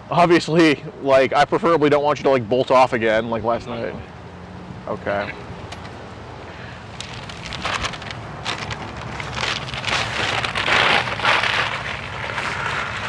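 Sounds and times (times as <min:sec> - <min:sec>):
crackling rustle: 0:05.3 - 0:13.0.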